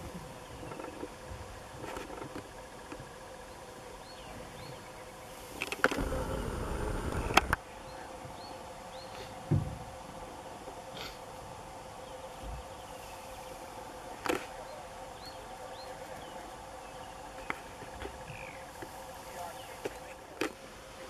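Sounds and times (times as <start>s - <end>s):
faint steady hum: 0.0s - 21.0s
low thump: 9.5s - 9.9s.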